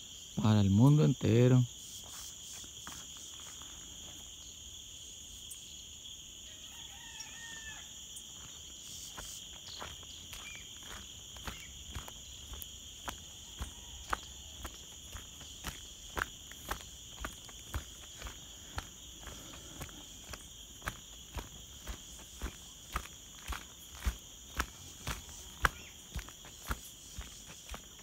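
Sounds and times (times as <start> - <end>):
insects droning: 0.0 - 28.0
footsteps on a dirt road: 2.0 - 4.4, 7.3 - 28.0.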